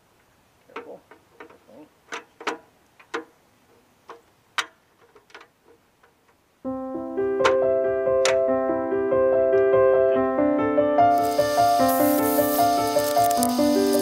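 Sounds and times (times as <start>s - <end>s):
clicks and taps on metal rack: 0.6s - 3.4s, 4.0s - 6.4s
keyboard music with held notes: 6.6s - 14.0s.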